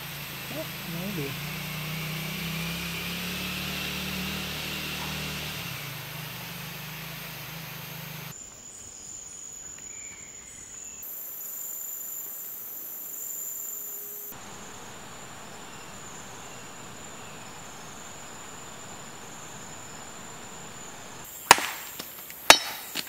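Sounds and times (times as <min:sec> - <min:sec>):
hiss: 0:00.0 - 0:08.4
insects droning: 0:00.0 - 0:23.0
low steady hum: 0:14.4 - 0:21.3.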